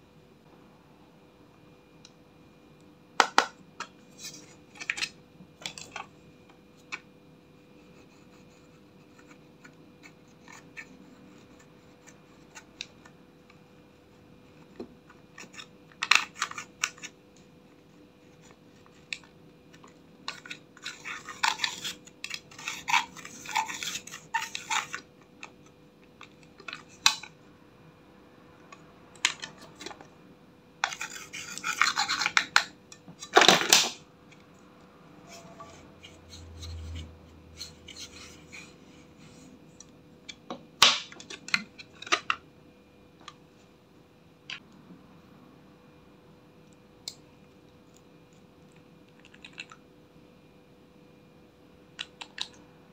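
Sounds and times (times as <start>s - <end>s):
tool scraping powder in palette: 20.3s - 25.1s, 30.8s - 32.7s.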